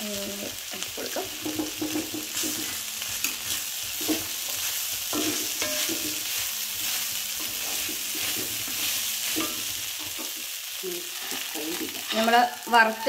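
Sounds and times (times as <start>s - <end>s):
frying sizzle in oil: 0.0s - 13.0s
wooden spatula scraping metal pan: 1.4s - 10.5s.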